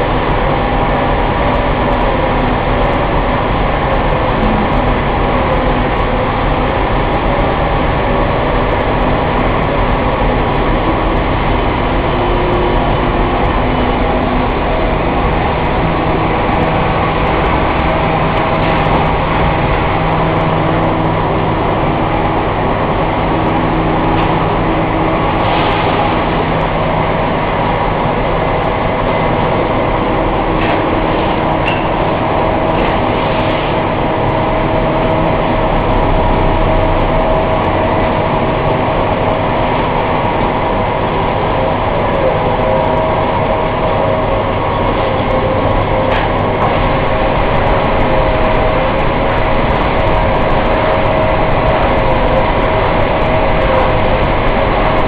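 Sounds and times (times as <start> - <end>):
machine drone with whine: 0.0 - 55.0.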